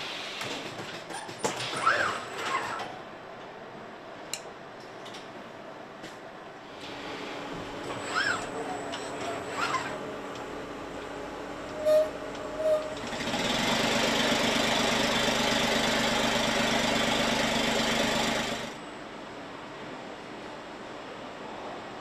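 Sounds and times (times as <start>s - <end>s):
factory background noise: 0.0s - 13.4s.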